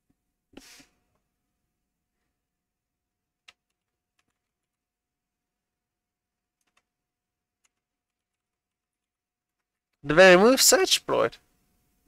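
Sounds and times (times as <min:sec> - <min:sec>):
computer keyboard keystrokes: 0:03.4 - 0:04.8, 0:06.6 - 0:06.9, 0:07.6 - 0:09.8.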